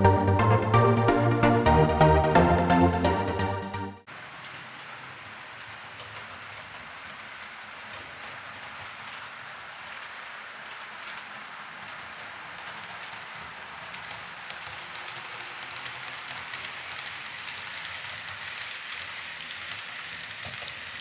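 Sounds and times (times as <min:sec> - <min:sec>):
electronic music: 0:00.0 - 0:04.0
model train rolling on track: 0:04.1 - 0:21.0.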